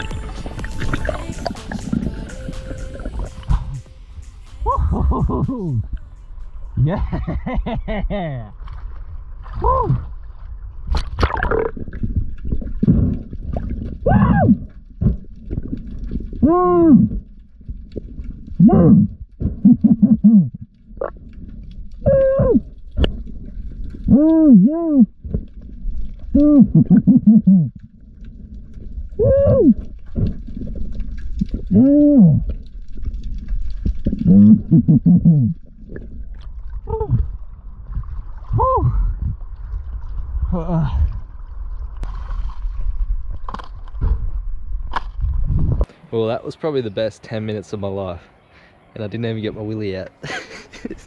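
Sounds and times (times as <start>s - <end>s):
water gurgling and splashing: 0.0s - 4.0s, 8.4s - 45.9s
low underwater rumble: 0.0s - 46.0s
muffled underwater whoops: 4.6s - 5.9s, 9.6s - 10.1s, 14.0s - 14.8s, 16.4s - 17.2s, 22.0s - 22.8s, 24.1s - 25.2s, 29.1s - 30.0s, 38.5s - 39.2s.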